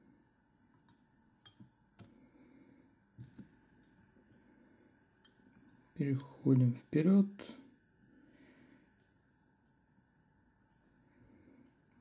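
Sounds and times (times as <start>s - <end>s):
faint clicks and taps: 0.8s - 2.2s.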